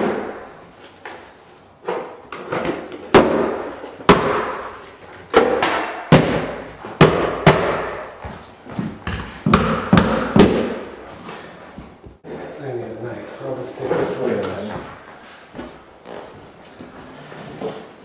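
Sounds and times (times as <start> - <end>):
hammer striking nails: 3.1 - 4.7, 5.3 - 8.1, 9.0 - 10.9.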